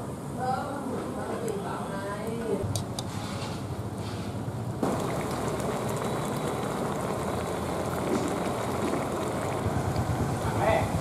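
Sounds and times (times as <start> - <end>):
broth bubbling and sizzling: 3.7 - 11.0.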